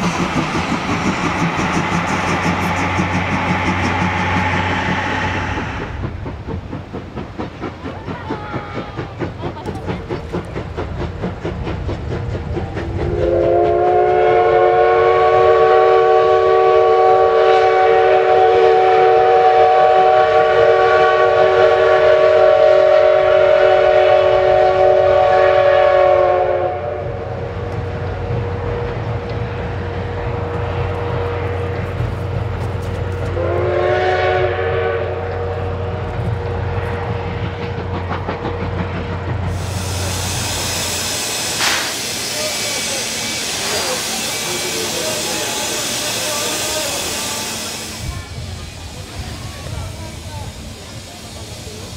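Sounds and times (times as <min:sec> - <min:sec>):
low rumble of train running: 0:00.0 - 0:51.9
steam locomotive whistle: 0:12.8 - 0:28.6, 0:33.1 - 0:37.4, 0:39.5 - 0:49.4.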